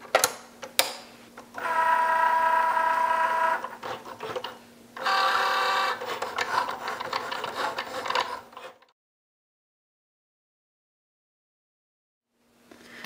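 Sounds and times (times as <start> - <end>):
cutting machine motor whine: 1.6 - 8.9.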